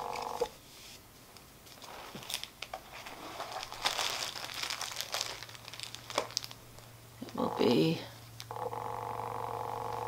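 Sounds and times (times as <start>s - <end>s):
packaging crinkling and rustling: 1.7s - 7.4s.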